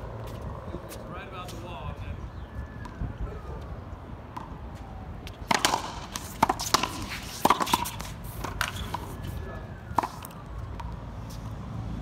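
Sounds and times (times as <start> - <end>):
ball cracking off racquets: 5.3 - 9.2.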